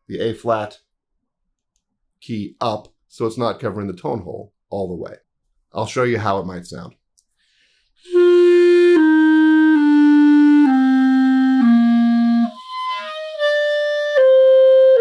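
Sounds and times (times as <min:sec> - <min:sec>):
clarinet playing held notes: 0:08.1 - 0:15.0.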